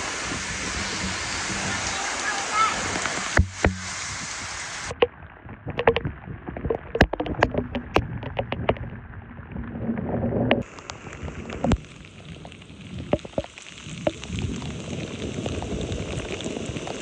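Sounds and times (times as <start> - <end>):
heavy rain pouring: 0.0 - 5.0, 10.6 - 17.0
raindrops tapping close by: 0.0 - 5.1, 5.7 - 9.1, 10.5 - 17.0.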